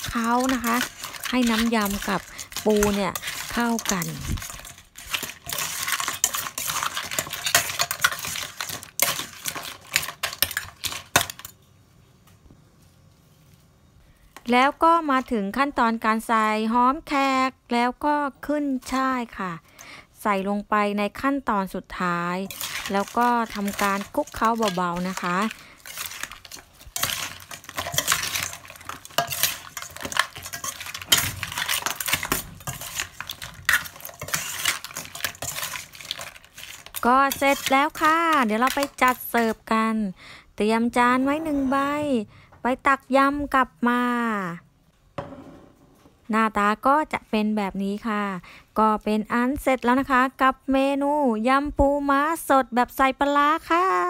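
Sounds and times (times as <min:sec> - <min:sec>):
crab shells clattering in metal bowl: 0:00.0 - 0:11.6, 0:22.4 - 0:39.7
tongs clicking and scraping on metal: 0:00.0 - 0:11.6, 0:22.4 - 0:39.7.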